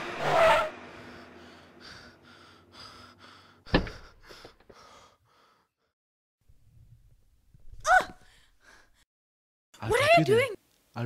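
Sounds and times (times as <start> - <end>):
sudden thump: 3.7 - 4.6.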